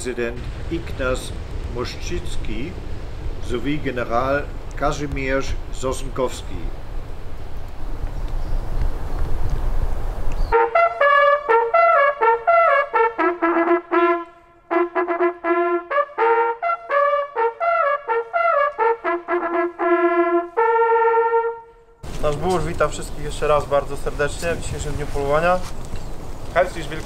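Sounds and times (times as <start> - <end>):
hunting horn blowing: 10.5 - 22.0.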